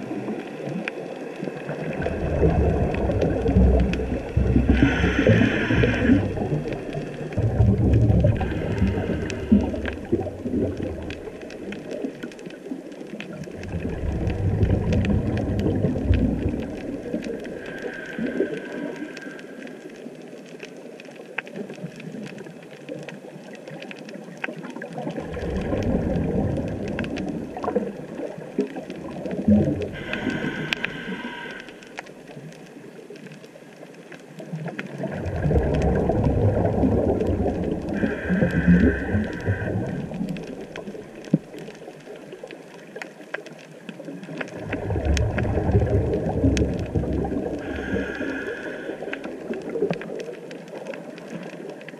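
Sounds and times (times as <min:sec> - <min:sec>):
reef crackling clicks: 0:00.0 - 0:51.9
rumbling bubble exhales: 0:01.5 - 0:19.8, 0:24.8 - 0:32.4, 0:34.6 - 0:41.8, 0:44.2 - 0:50.8
regulator hissing inhale: 0:04.7 - 0:07.2, 0:08.4 - 0:10.1, 0:17.5 - 0:20.0, 0:29.9 - 0:32.1, 0:38.0 - 0:40.2, 0:47.6 - 0:49.5.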